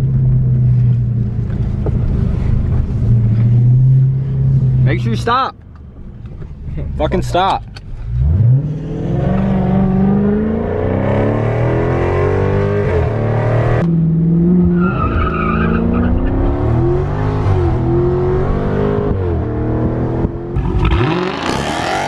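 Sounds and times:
car engine accelerating hard: 8.1 - 22.0.

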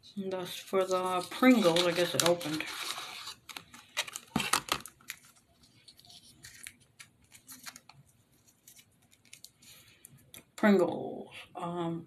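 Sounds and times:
packaging crinkling: 0.8 - 9.8.

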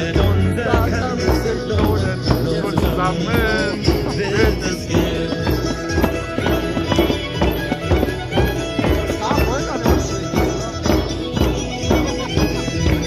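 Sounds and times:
music with steady beat: 0.0 - 13.0.

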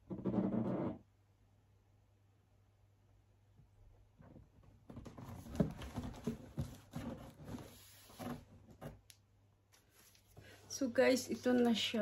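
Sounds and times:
cardboard box scraping and rustling: 5.1 - 8.7.

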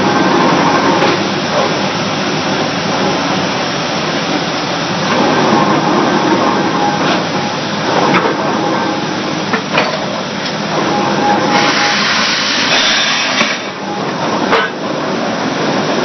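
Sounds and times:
hiss of exhaust: 11.5 - 13.7.

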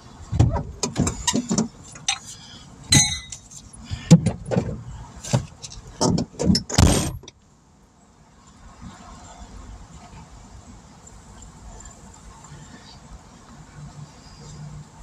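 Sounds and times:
metallic jingle: 2.9 - 3.4.

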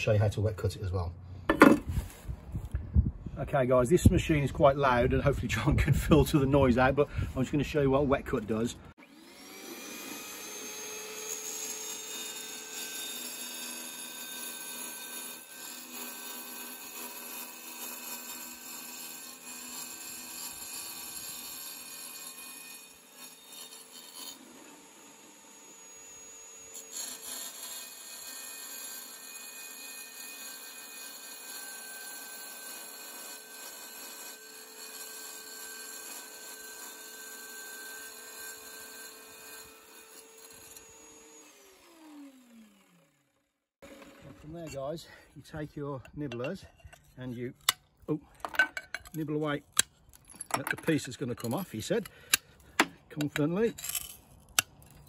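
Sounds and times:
wet tile saw cutting tile: 9.0 - 43.1.

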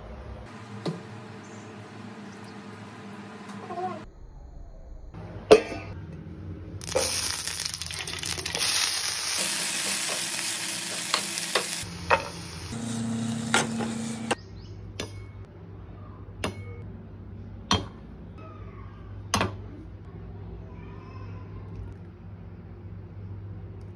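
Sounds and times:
food sizzling in hot oil: 6.8 - 14.3.

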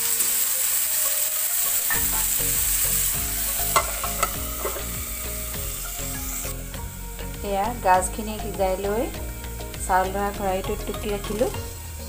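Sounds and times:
food sizzling in oil: 0.0 - 12.0
knocks against pan: 3.7 - 5.0.

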